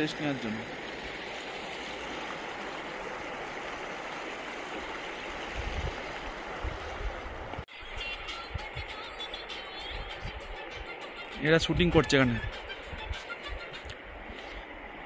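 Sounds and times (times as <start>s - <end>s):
river water rushing: 0.0s - 7.6s, 12.3s - 15.0s.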